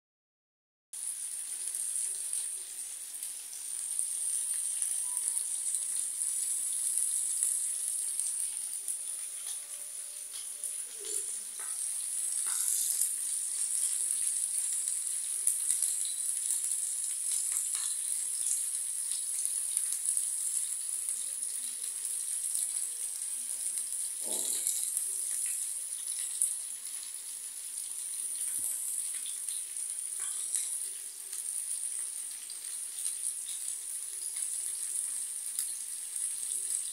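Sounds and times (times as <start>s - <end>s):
steaks sizzling in a pan: 1.0s - 36.9s
fat crackling and popping: 4.2s - 20.7s.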